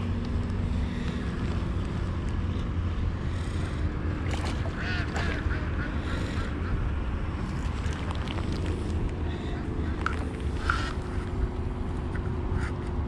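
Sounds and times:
wind rumble on microphone: 0.0 - 13.0
ducks quacking: 4.4 - 6.9.

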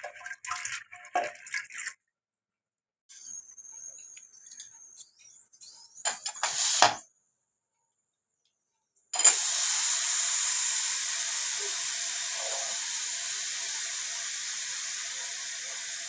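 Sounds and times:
water pouring from ladle: 0.0 - 2.0
pressure cooker hissing steam: 6.1 - 7.0, 9.2 - 16.0.

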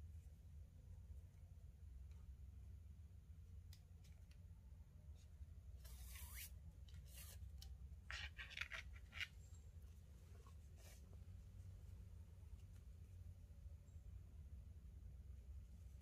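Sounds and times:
low steady hum: 0.0 - 16.0
cord rubbing through weave: 5.2 - 13.2.

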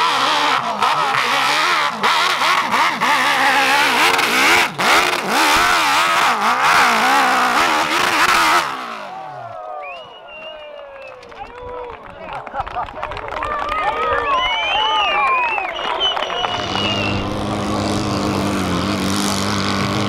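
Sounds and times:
dirt bike engine revving: 0.0 - 9.6, 15.9 - 20.0.

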